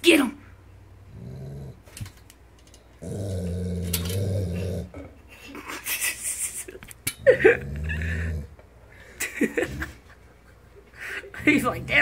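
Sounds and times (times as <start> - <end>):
dog growling: 1.0 - 2.0, 3.0 - 5.2, 7.3 - 8.6.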